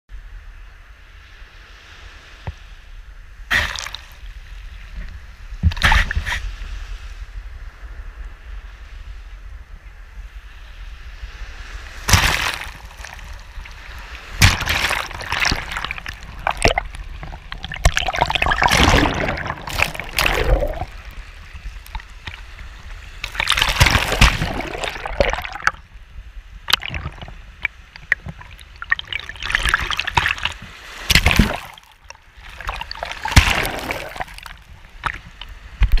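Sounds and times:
low rumble of surf: 0.1 - 36.0
water sloshing and splashing: 3.5 - 6.2, 11.9 - 26.0, 26.6 - 36.0.

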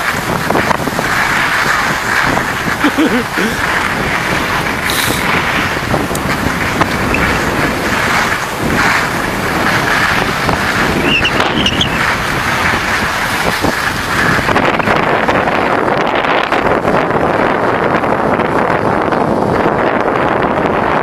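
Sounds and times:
skis scraping over snow: 0.0 - 21.0
wind on microphone: 0.0 - 21.0.

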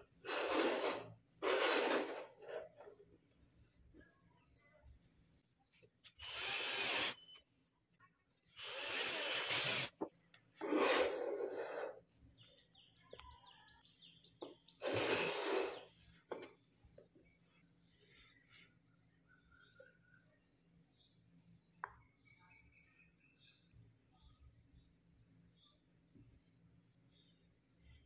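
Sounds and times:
drill driving screws into wood: 0.2 - 2.4, 6.1 - 7.4, 8.6 - 11.8, 14.8 - 15.9.

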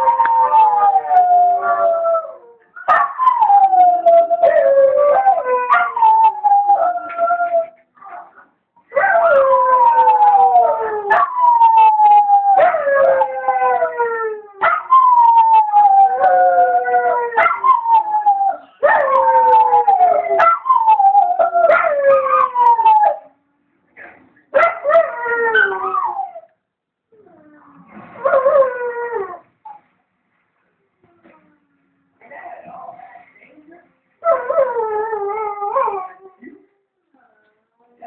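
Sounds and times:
dogs howling: 0.0 - 7.8, 9.0 - 23.3, 24.6 - 26.5.

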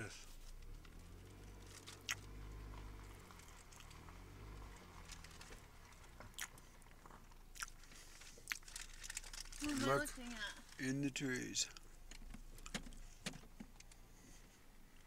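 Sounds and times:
chewing and crunching sandwich: 1.6 - 10.0.

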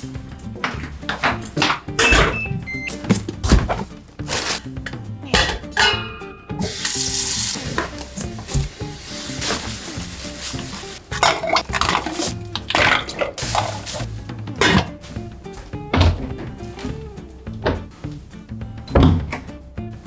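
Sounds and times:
light background music: 0.0 - 20.0
plastic bags crinkling: 9.3 - 14.1.

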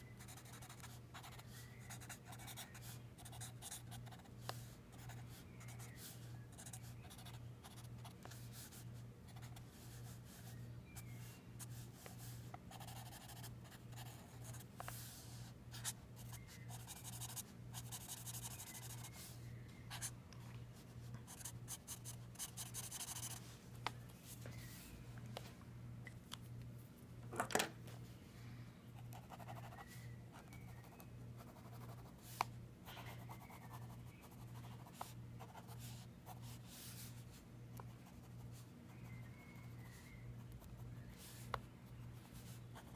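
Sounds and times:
marker scratching on paper: 0.2 - 10.5, 11.6 - 19.1, 21.3 - 23.4.

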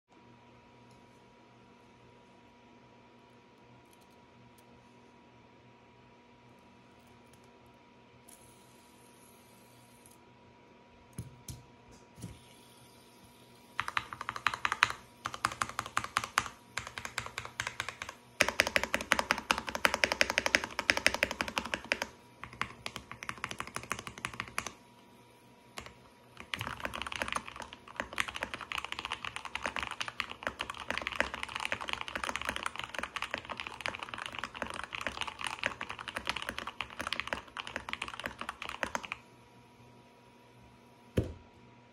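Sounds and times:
mechanical keyboard typing: 13.8 - 24.8, 25.8 - 39.2.

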